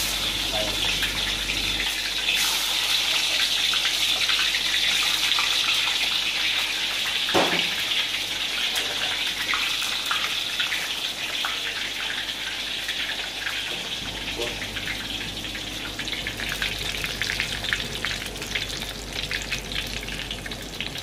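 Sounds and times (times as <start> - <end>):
fries sizzling in hot oil: 0.0 - 21.0
knock: 7.4 - 7.7.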